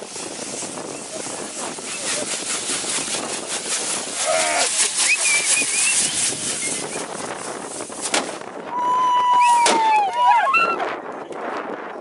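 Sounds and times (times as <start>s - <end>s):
firework fizzing and crackling: 0.0s - 10.0s
high wavering calls: 4.2s - 7.1s.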